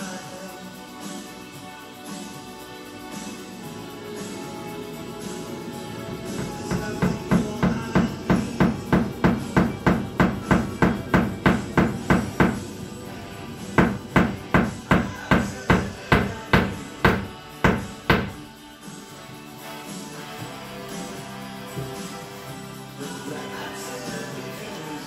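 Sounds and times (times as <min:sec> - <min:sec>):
music: 0:00.0 - 0:25.0
hammer striking nail: 0:06.4 - 0:12.8, 0:13.8 - 0:18.4.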